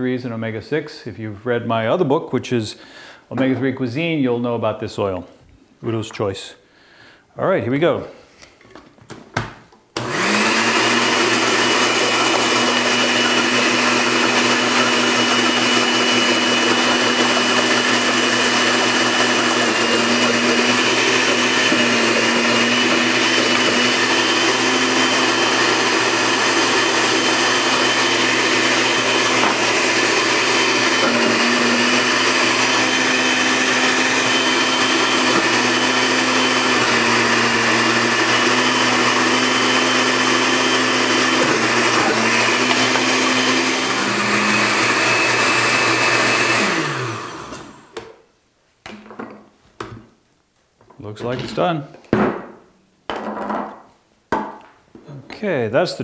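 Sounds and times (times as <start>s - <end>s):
blender running: 10.0s - 48.0s.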